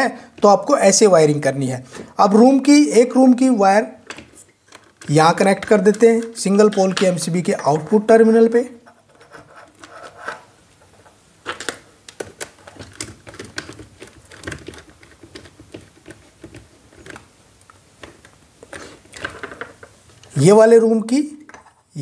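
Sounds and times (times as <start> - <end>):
screwdriver clicks and scrapes: 8.9 - 10.5.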